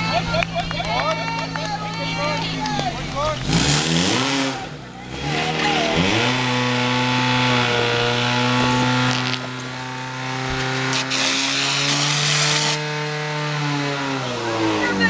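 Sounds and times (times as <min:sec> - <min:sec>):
pump engine revving: 0:02.8 - 0:15.0
water spray hissing: 0:10.9 - 0:12.8.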